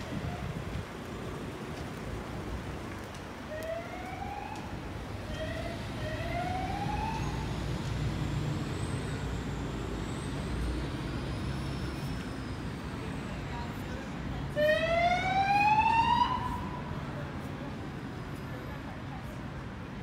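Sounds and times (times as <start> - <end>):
emergency vehicle siren wailing: 3.4 - 12.1, 14.5 - 16.9.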